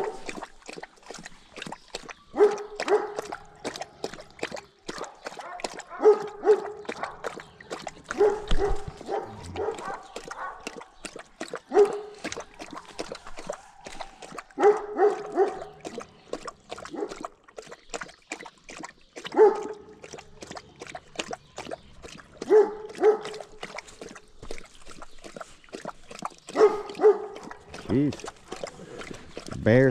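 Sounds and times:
dog barking: 0.0 - 0.3, 2.3 - 3.6, 5.0 - 7.4, 8.1 - 10.8, 11.7 - 16.0, 16.9 - 17.2, 19.3 - 19.8, 22.4 - 23.6, 26.5 - 27.6
dog lapping water: 0.0 - 29.9.

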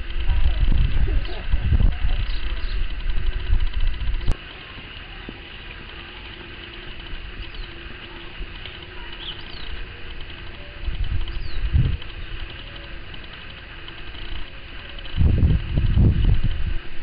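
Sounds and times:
faint low hum: 0.0 - 17.0
high falling bird chirps: 7.3 - 10.0, 10.6 - 13.0.

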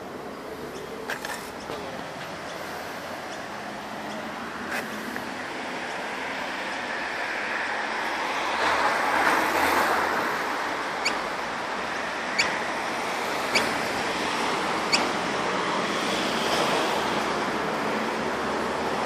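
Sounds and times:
street traffic hiss: 0.0 - 19.0
sharp bird calls: 11.0 - 11.3, 12.3 - 12.6, 13.4 - 13.8, 14.9 - 15.1.

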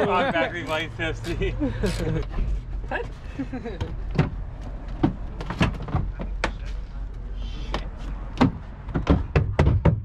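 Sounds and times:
sharp clicks and knocks: 7.7 - 10.0.

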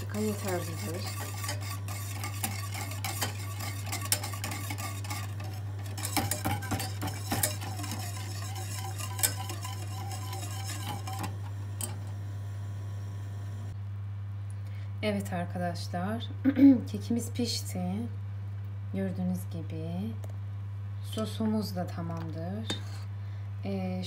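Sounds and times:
whisk scraping a metal pot: 0.0 - 11.3, 22.7 - 23.1
steady low hum: 0.0 - 24.0.

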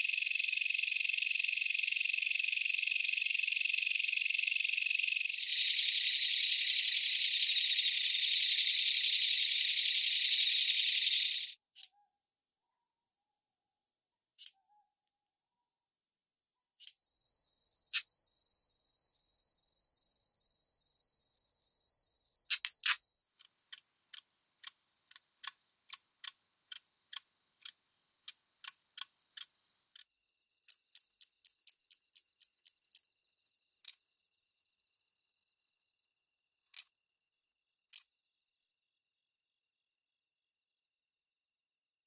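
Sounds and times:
katydid buzzing: 0.0 - 11.6
katydid fast ticking: 0.0 - 11.6, 23.7 - 33.1
katydid clicks: 0.0 - 11.9, 22.5 - 33.1, 36.7 - 37.0.

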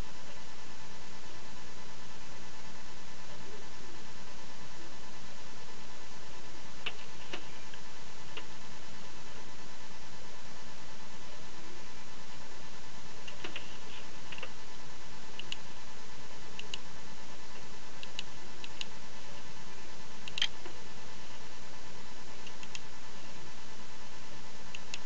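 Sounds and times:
faint hum: 0.0 - 25.0
steady hiss: 0.0 - 25.0
computer mouse clicks: 15.4 - 15.6, 16.6 - 16.8, 18.0 - 19.0, 20.2 - 20.7, 22.4 - 22.9, 24.7 - 25.0.

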